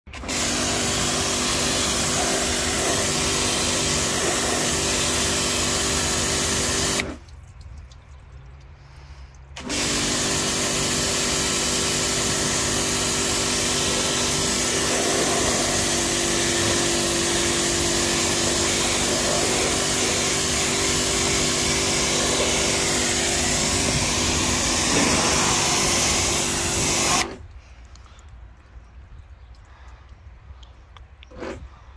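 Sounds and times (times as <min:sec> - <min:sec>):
pressure washer motor hum: 0:00.1 - 0:07.2, 0:09.6 - 0:27.4
water jet hissing on car panel: 0:00.2 - 0:07.2, 0:09.6 - 0:27.4.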